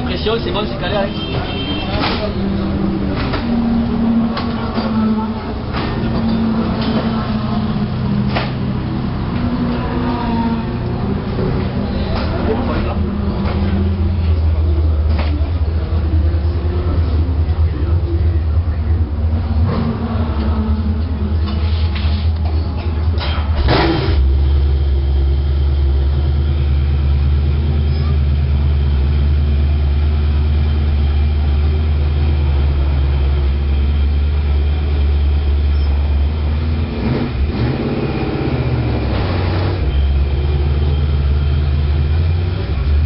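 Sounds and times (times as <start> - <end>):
race car engine idling: 0.0 - 43.0
engine revving: 19.2 - 22.2, 23.2 - 43.0.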